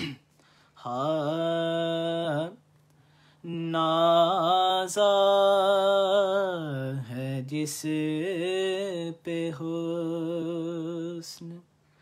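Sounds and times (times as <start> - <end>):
man breathing: 0.2 - 0.8, 2.9 - 3.5
man singing unaccompanied: 0.8 - 2.7, 3.4 - 11.7.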